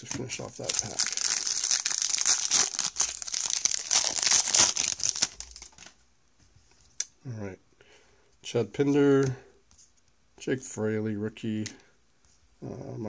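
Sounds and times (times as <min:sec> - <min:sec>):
wrapper tearing and crinkling: 0:00.0 - 0:06.0.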